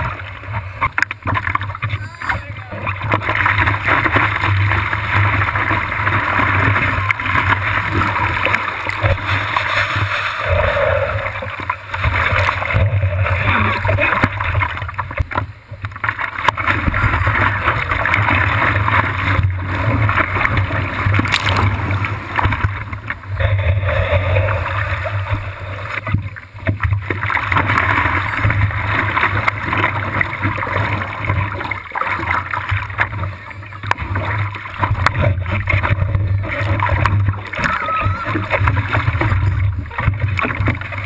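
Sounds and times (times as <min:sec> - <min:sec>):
water splashing against surfboard: 0:00.0 - 0:41.0.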